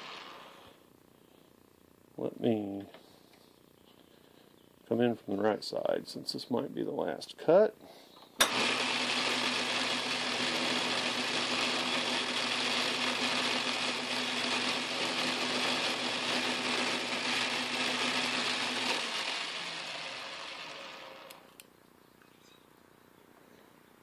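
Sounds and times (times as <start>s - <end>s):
metal lathe milling whirring: 8.4s - 21.4s.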